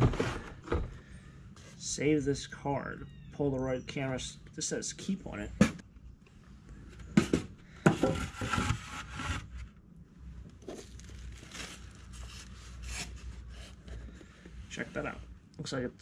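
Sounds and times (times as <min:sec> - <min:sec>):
foam scraping and crinkling: 0:10.6 - 0:13.8.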